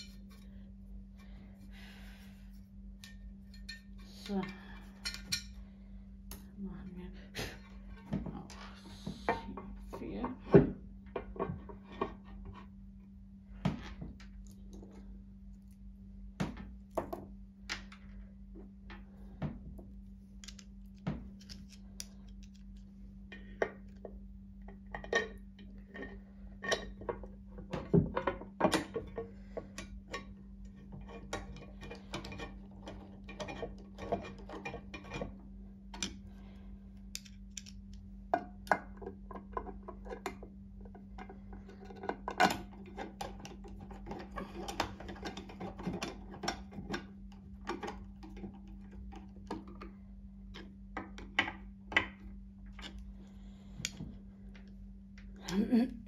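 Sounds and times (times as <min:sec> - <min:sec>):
low steady hum: 0:00.0 - 0:56.0
metal parts and tool clicking: 0:20.4 - 0:22.8.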